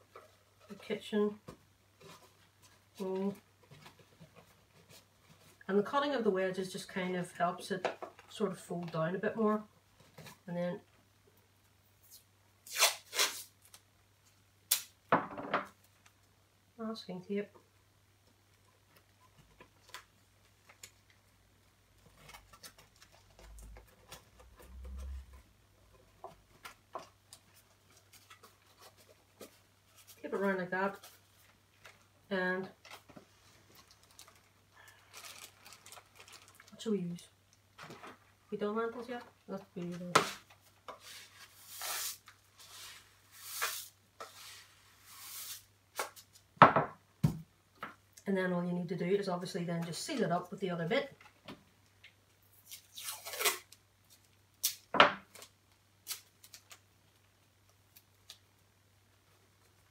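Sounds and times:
masking tape crackling: 18.2s - 40.9s.

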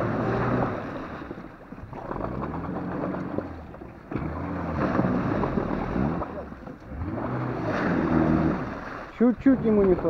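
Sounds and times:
wheels churning through icy water: 0.0s - 10.0s
car engine revving: 2.0s - 9.0s.

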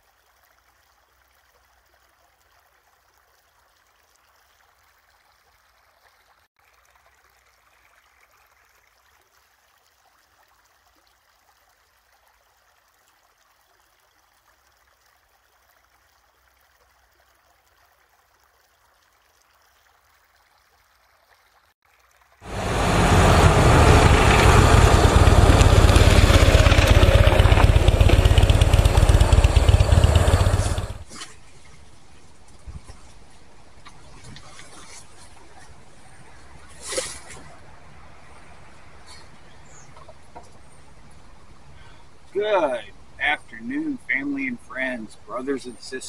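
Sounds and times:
faint steady hiss: 37.3s - 46.0s.

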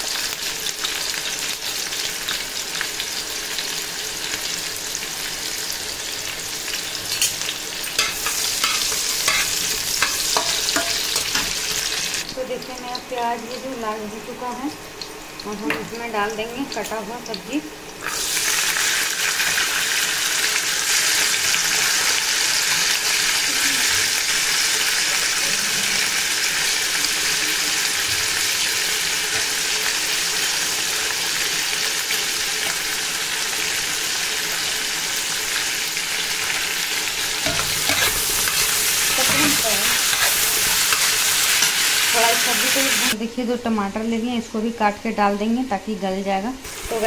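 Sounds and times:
vegetables sizzling in hot oil: 0.0s - 45.7s, 46.6s - 47.0s
metal spatula stirring: 8.0s - 11.6s, 37.4s - 41.8s.

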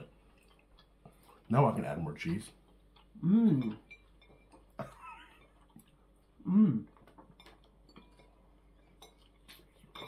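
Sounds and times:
chewing clicks and smacks: 0.3s - 1.5s
person humming mmm: 3.2s - 3.9s, 6.4s - 7.0s.

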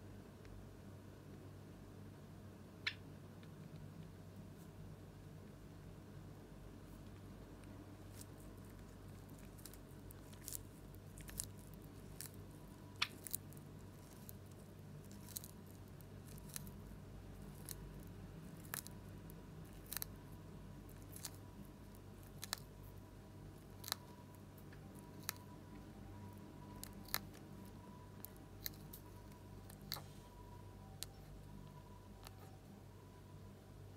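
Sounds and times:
tortoise crunching leaves: 8.0s - 19.0s, 19.6s - 20.3s.

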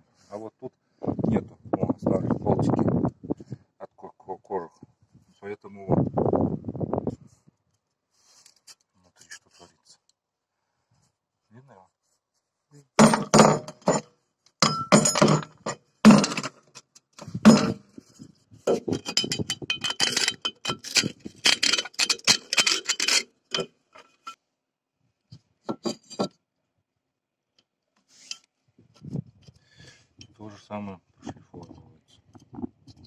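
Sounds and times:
screwdriver scraping rusty metal: 18.7s - 24.4s.

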